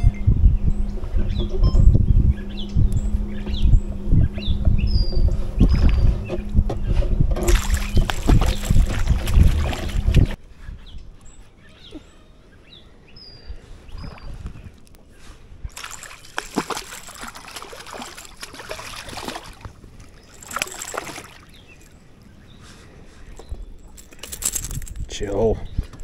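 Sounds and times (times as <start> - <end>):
water splashing against kayak: 7.3 - 10.4, 15.7 - 22.3.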